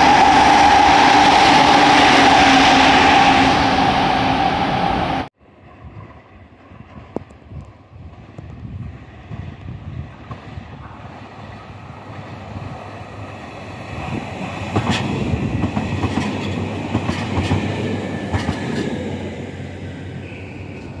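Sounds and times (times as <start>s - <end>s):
electric train running past: 0.0s - 21.0s
wheels clacking over rail joints: 13.8s - 19.1s.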